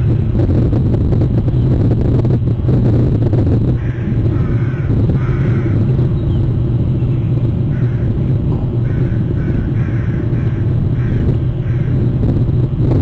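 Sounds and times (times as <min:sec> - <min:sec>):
low rumble: 0:00.0 - 0:13.0
bird calling: 0:03.8 - 0:12.1.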